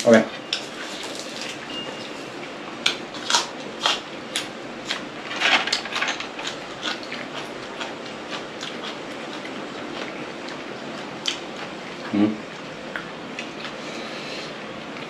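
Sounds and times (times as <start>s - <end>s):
chewing with crisp clicks and smacks: 2.8s - 5.1s, 5.7s - 14.0s.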